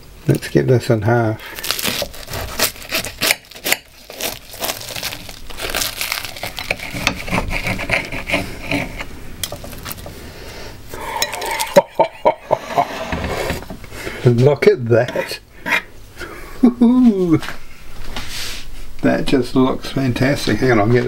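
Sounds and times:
pastry crust crackling and tearing: 1.4s - 7.8s, 9.4s - 10.1s
knife and fork scraping plate: 6.4s - 9.1s, 11.2s - 11.8s.

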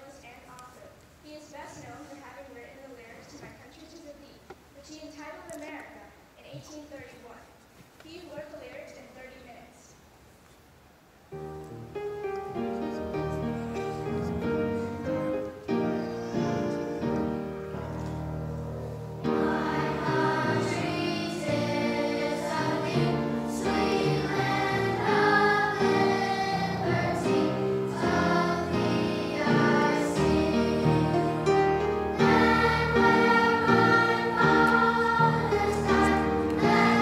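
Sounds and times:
instrumental accompaniment: 11.3s - 37.0s
children's choir singing: 18.7s - 37.0s.

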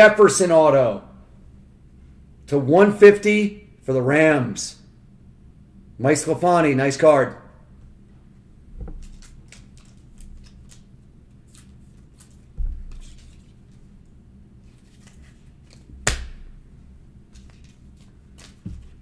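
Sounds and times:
plastic sleeve scuffs: 17.4s - 19.0s.

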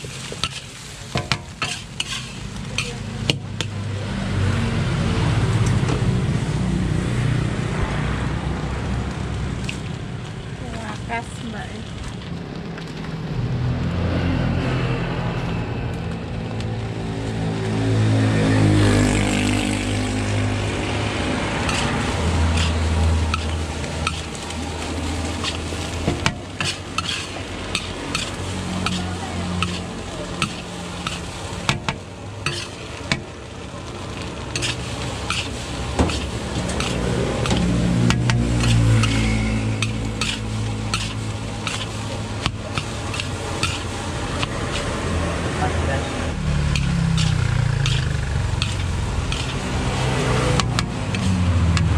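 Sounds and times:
spatula scraping in a wok: 0.0s - 5.0s, 19.0s - 51.9s
rice sizzling: 0.0s - 51.9s
low rumble: 4.0s - 26.0s
spatula clanking against wok: 50.6s - 51.9s.

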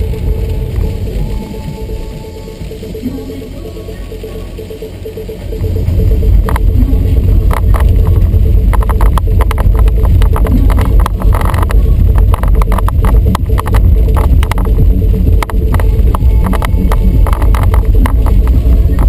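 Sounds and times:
tyres rumbling over cobblestones: 0.0s - 19.0s
rattling and clicking: 5.6s - 19.0s.

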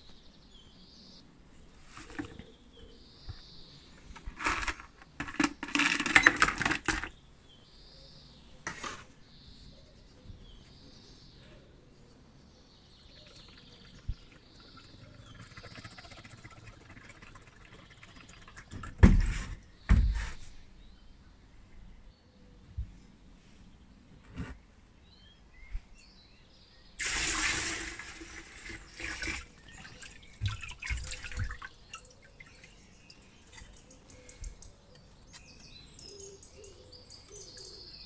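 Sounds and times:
metal parts clattering into bucket: 4.3s - 7.1s
liquid trickling from jug: 13.2s - 19.0s, 27.0s - 33.9s.

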